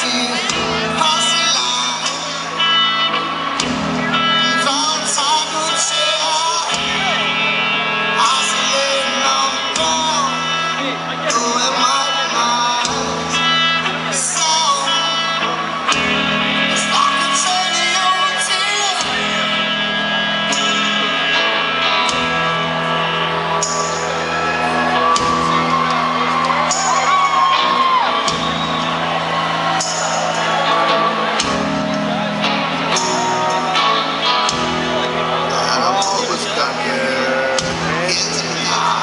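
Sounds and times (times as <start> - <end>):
male lead vocal: 0.0 - 2.6, 4.0 - 15.9, 16.6 - 19.6, 35.2 - 39.0
electric guitars: 0.0 - 39.0.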